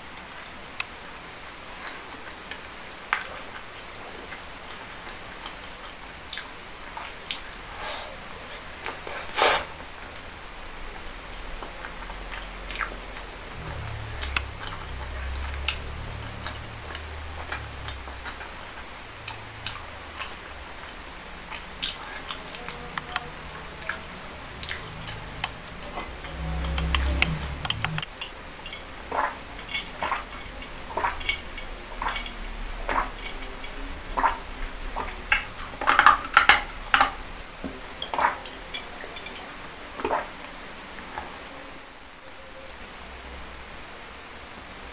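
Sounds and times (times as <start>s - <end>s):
chewing and wet mouth smacking: 0.2s - 9.1s, 11.0s - 28.3s
sipping from a mug: 7.3s - 9.8s
low rumble: 12.0s - 21.5s, 23.3s - 28.1s.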